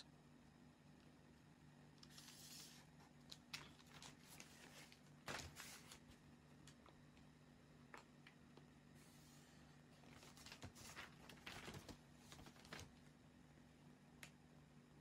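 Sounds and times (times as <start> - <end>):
faint steady hum: 0.0 - 15.0
paper and tools rustling: 2.0 - 6.2, 9.0 - 13.0.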